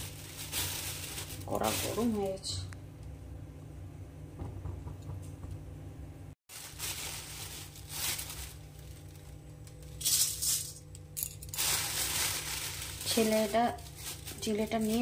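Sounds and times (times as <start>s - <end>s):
rice flakes pattering on metal: 11.5s - 15.0s.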